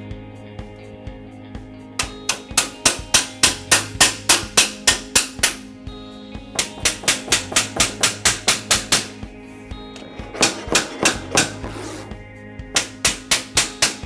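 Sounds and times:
background music: 0.0 - 14.0
hammer tapping metal frame: 2.0 - 5.7, 6.6 - 9.2, 10.0 - 11.9, 12.8 - 14.0.

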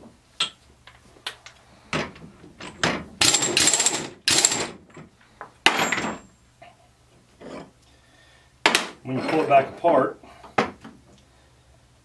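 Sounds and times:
air impact wrench hammering: 3.2 - 4.8.

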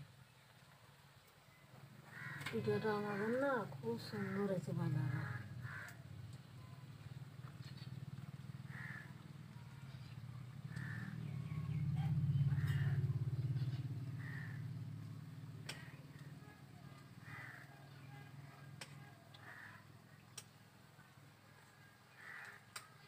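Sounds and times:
low steady hum: 0.0 - 23.0
crows cawing: 2.0 - 6.2, 7.7 - 15.0, 15.6 - 20.6, 21.5 - 23.0.

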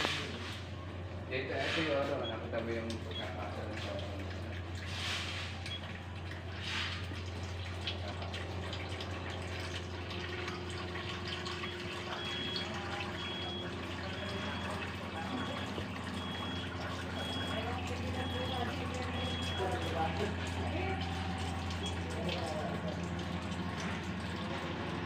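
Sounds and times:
water running: 0.0 - 25.0.

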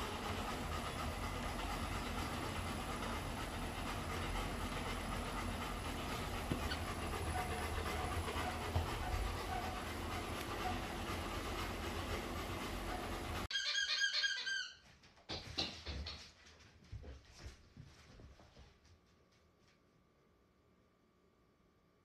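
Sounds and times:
dog panting: 0.0 - 13.5
treadmill belt and motor rumble: 0.0 - 13.5.

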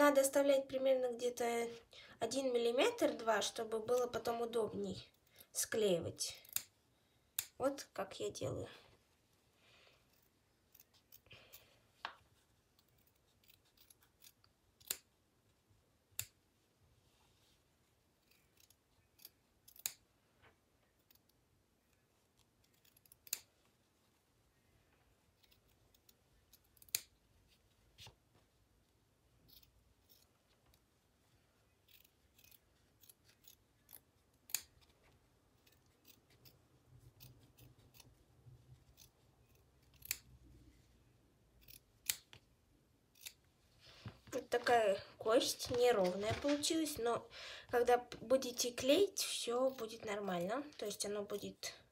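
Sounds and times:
scissors snipping fabric: 6.3 - 6.7, 7.3 - 7.9, 10.0 - 11.7, 12.7 - 15.1, 16.1 - 16.4, 18.2 - 20.1, 20.8 - 23.6, 25.3 - 27.2, 29.5 - 30.9, 31.8 - 38.2, 38.8 - 40.3, 41.6 - 42.5, 43.1 - 43.4, 48.2 - 51.5.

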